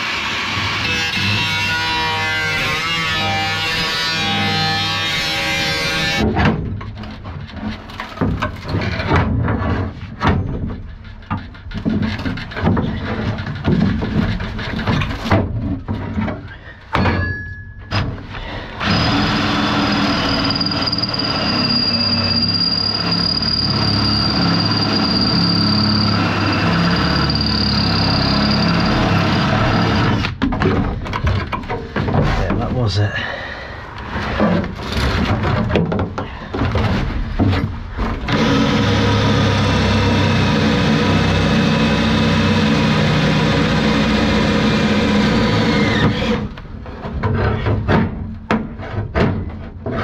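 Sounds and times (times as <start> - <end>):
cordless drill whining: 18.7 - 30.4, 38.3 - 46.6.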